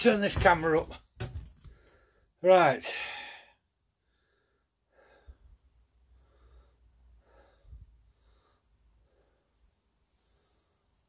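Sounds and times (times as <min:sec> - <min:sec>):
faint breaths: 0:01.6 - 0:11.0.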